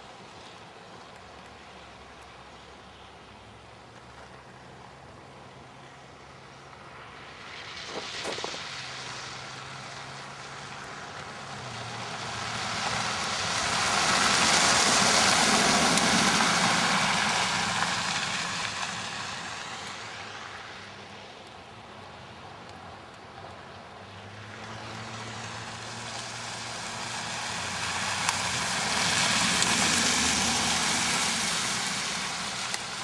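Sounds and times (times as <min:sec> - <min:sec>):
car driving past: 0:06.9 - 0:21.1, 0:24.0 - 0:33.0
another vehicle passing: 0:06.9 - 0:21.3, 0:24.0 - 0:33.0.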